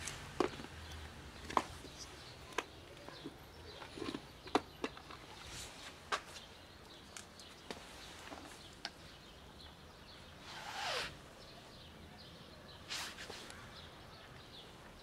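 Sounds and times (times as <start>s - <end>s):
cat crunching dry kibble: 0.0s - 5.3s
rustle: 10.0s - 14.6s.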